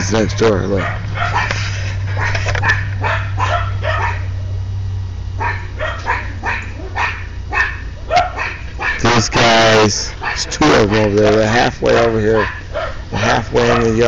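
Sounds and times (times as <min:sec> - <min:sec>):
small dog yapping: 0:00.8 - 0:04.5, 0:05.4 - 0:09.1, 0:10.2 - 0:11.1, 0:12.4 - 0:13.0.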